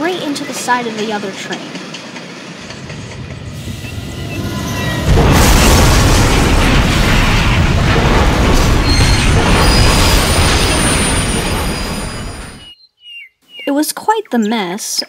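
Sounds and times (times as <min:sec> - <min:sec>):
train crash boom and rumble: 0:02.6 - 0:12.8.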